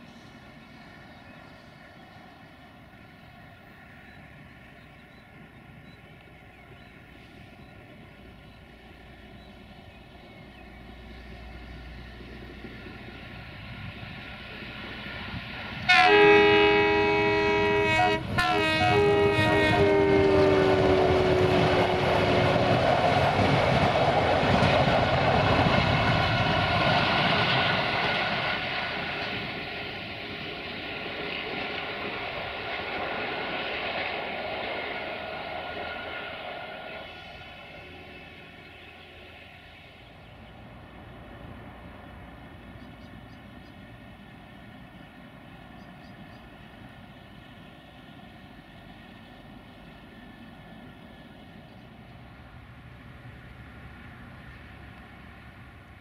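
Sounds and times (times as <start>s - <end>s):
diesel locomotive engine: 0.0s - 56.0s
train horn blasts: 15.8s - 22.7s
train wheels rattling over rails: 18.2s - 40.0s.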